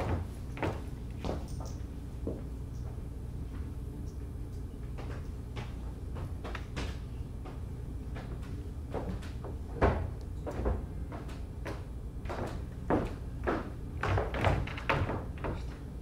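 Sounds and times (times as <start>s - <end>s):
low hall hum: 0.0s - 16.0s
knocks and creaks on wooden stage: 8.2s - 16.0s.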